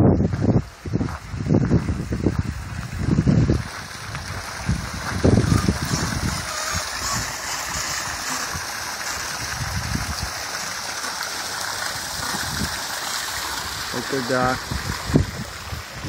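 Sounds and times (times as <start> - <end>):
water jet splashing into water: 3.4 - 16.0.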